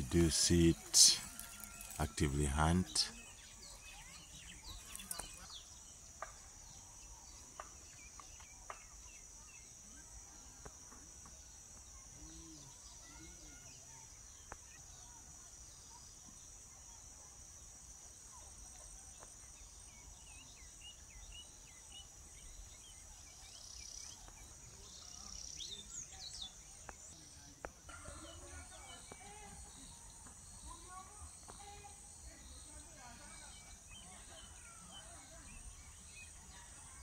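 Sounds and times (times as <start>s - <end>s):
insects chirring: 0.0s - 37.0s
small bird chirps: 3.1s - 10.7s.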